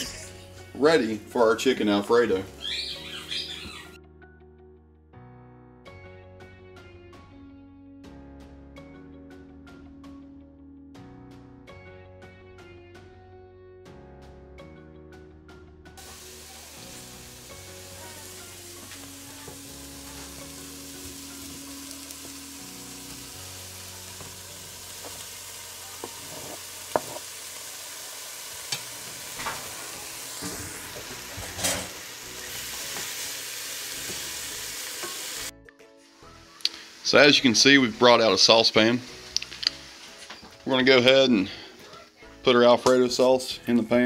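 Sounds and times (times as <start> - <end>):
food sizzling in oil: 16.0 - 40.6
wooden spoon knocking on pot: 26.0 - 27.3.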